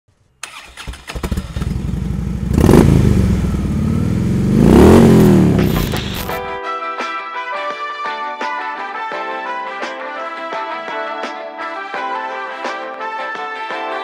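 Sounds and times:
vehicle engine starting and revving: 0.4 - 6.4.

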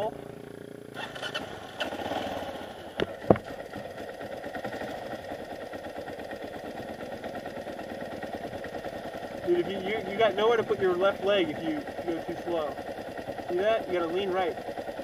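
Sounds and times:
dirt bike engine idling: 0.0 - 15.0
sharp knocks: 3.0 - 3.5.

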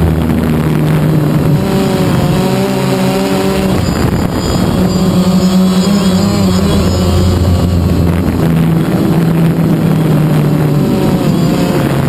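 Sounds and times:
drone propellers humming: 0.0 - 12.0.

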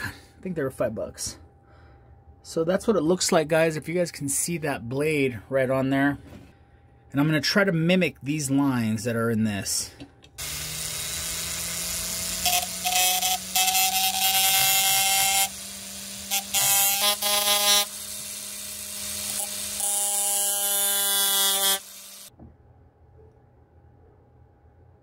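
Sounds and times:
rotary tool cutting metal: 10.4 - 22.3.

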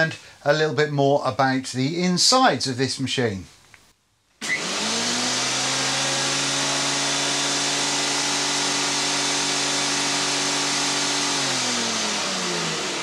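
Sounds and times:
thickness planer motor hum: 4.4 - 13.0.

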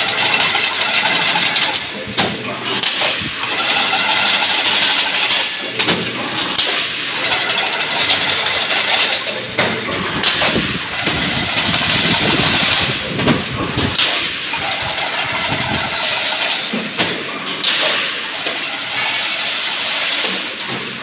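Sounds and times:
fence weaving machine clattering: 0.0 - 21.0.

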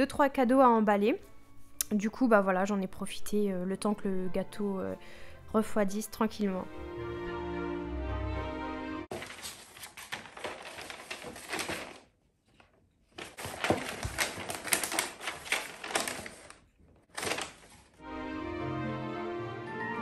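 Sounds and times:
wrapping paper crinkling: 9.1 - 18.0.

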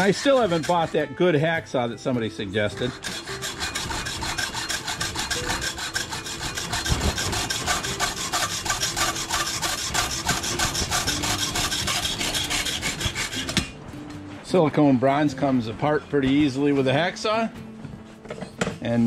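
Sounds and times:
hacksaw cutting metal: 0.0 - 13.8.

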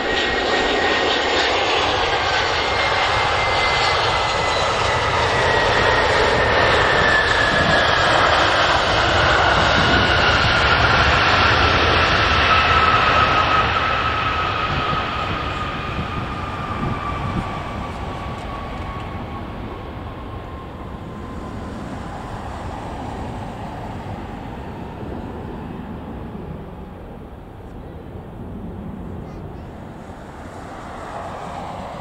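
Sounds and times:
jet engines spooling down: 0.0 - 32.0.

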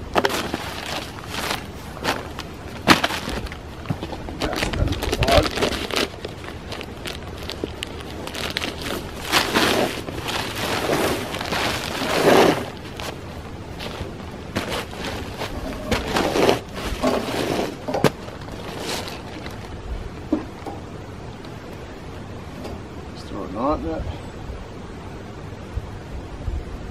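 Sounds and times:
rope rustling and scuffing: 0.0 - 19.8
footsteps on tarp and sawdust: 7.0 - 13.2, 13.8 - 17.8.

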